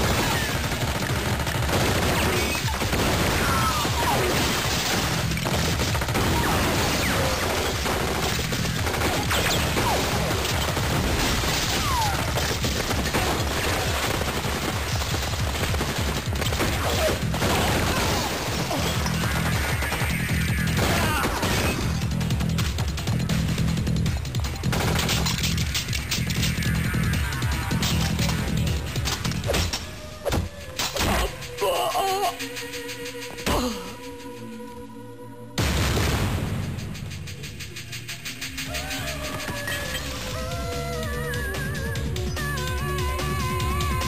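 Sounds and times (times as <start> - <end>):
rapid gunfire: 0.0 - 29.7, 35.6 - 40.3
action music with steady beat: 0.0 - 34.8, 35.6 - 44.0.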